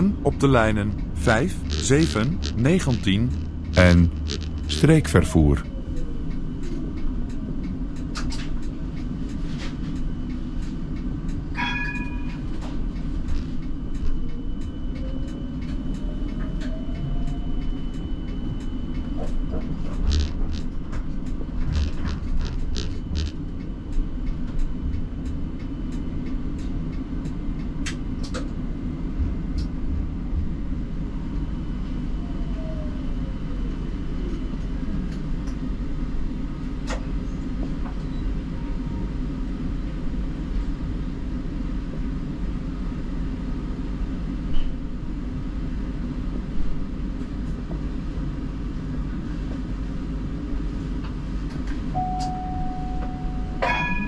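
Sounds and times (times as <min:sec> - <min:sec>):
brief ringing tone: 0:52.0 - 0:54.0.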